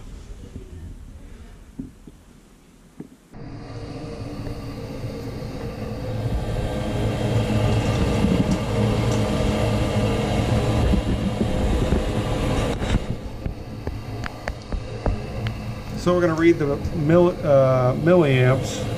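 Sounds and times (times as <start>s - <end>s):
furnace inducer motor humming: 3.3s - 18.9s.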